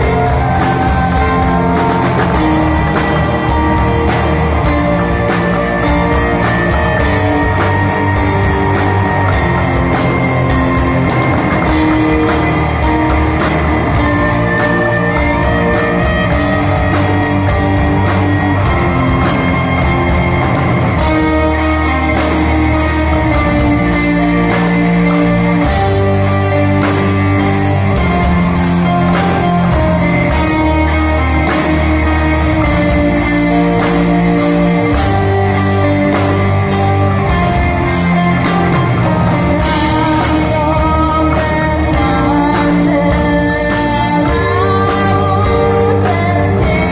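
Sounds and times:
bass guitar: 0.0 - 46.9
drum kit beat: 0.0 - 46.9
electric guitars: 0.0 - 46.9.

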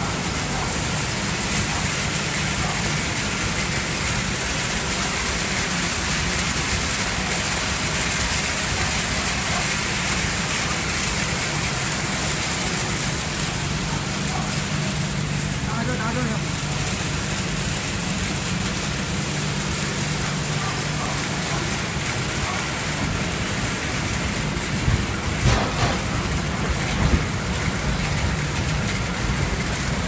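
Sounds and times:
low machine hum: 0.0 - 30.0.

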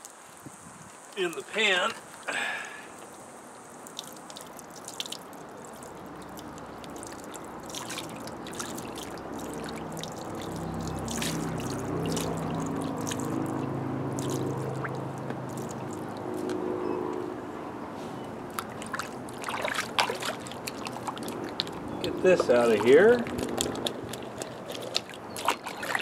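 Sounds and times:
low steady hum: 1.2 - 26.0
small splashes: 3.8 - 16.6, 18.5 - 26.0
muddy water sloshing in a pan: 3.9 - 16.5, 18.5 - 26.0.

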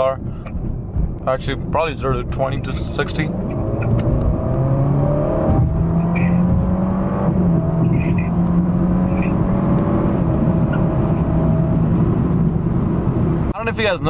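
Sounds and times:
car engine accelerating: 0.7 - 13.5.

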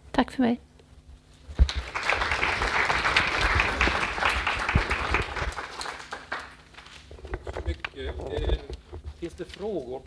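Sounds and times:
audience applauding: 1.6 - 7.1.

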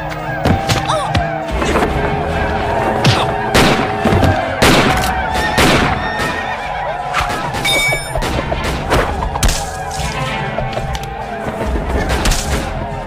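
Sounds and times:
action film score: 0.0 - 13.0
sharp bangs and thuds: 3.0 - 13.0.

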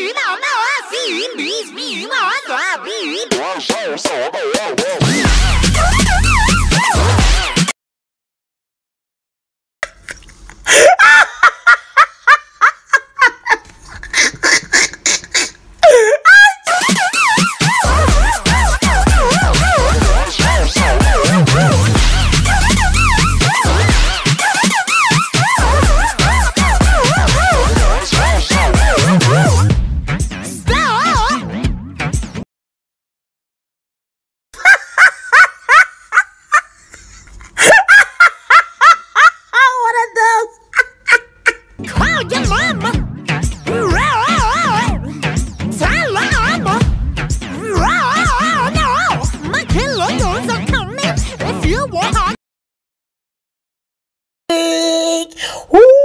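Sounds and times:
woman making clipped vocal sounds: 13.7 - 16.2, 54.5 - 56.0
woman's swooping cries: 55.7 - 56.0.

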